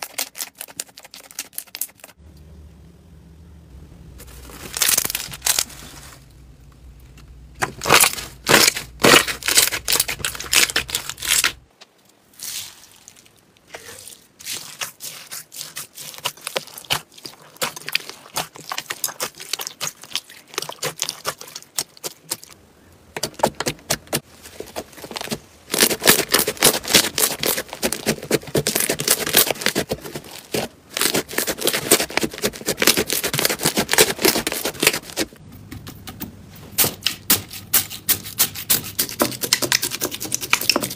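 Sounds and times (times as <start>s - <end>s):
slime crackling and popping: 7.6s - 11.6s, 12.5s - 22.6s.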